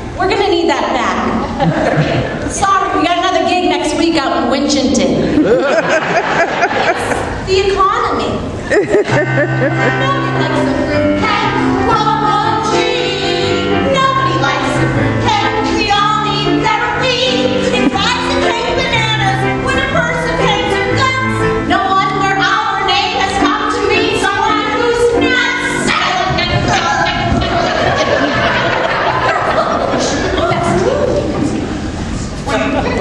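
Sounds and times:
instrumental accompaniment with bass: 8.7 - 29.8
women singing into microphones: 10.0 - 28.2.

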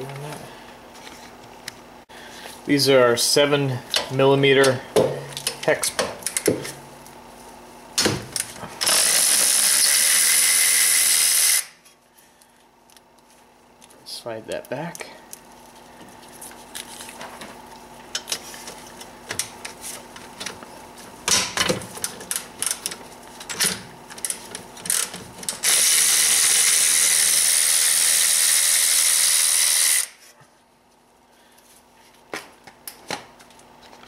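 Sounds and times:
power tool running: 8.8 - 11.8, 24.9 - 30.2.

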